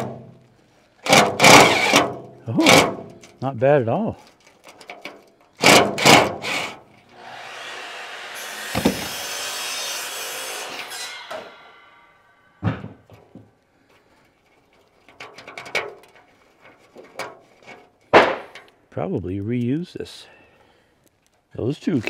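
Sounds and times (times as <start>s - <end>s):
metal knocks: 8.7s - 9.2s.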